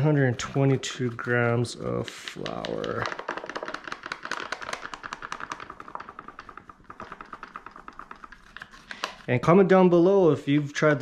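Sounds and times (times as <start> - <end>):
paper flour bag tapping: 2.1 - 9.2.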